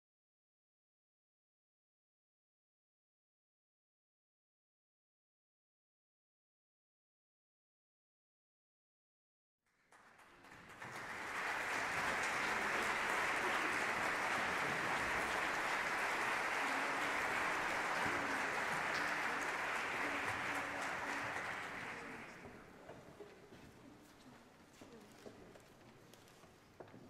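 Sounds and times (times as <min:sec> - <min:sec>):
audience applauding: 0:09.8 - 0:22.7.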